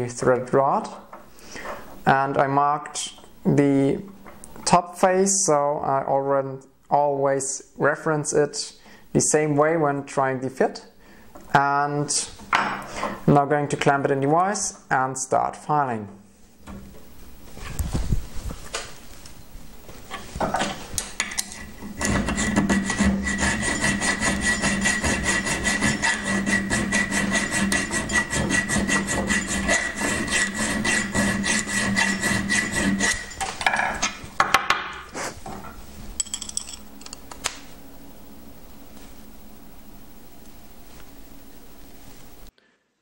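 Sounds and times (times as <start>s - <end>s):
hand file rasping on metal: 21.5s - 33.4s.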